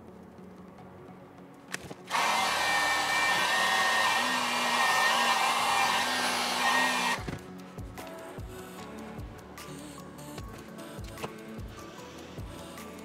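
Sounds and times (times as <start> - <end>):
heat gun blowing air: 2.1 - 7.3.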